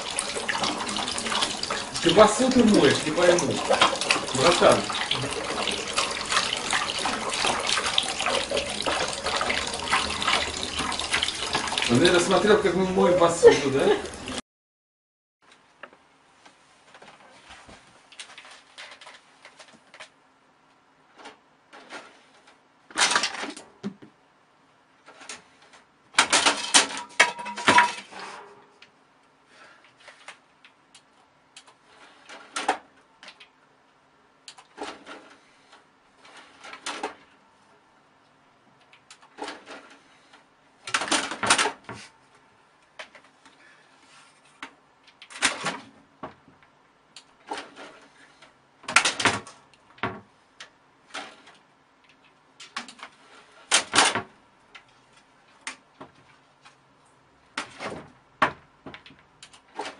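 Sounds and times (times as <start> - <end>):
objects knocking and rattling: 26.2 - 28.6.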